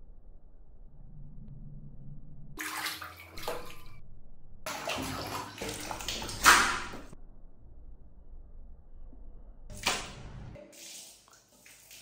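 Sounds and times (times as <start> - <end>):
monkey splashing water in basin: 2.6 - 3.9, 4.7 - 7.2, 9.7 - 12.0.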